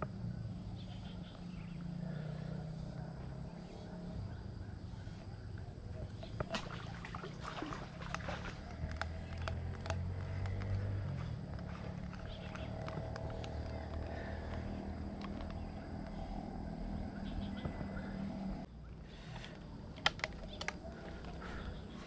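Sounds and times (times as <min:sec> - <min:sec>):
handling clicks and taps: 0:08.1 - 0:10.9, 0:11.5 - 0:16.2.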